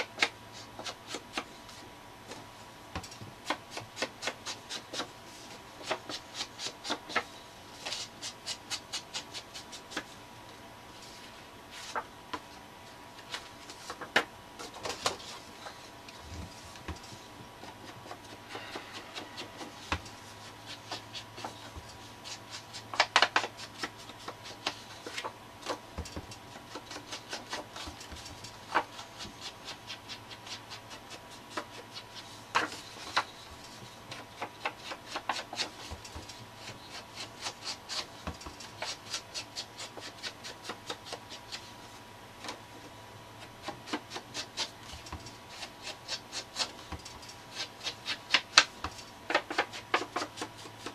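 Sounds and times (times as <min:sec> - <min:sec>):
ink pad scratching on paper: 0:16.5 - 0:25.8.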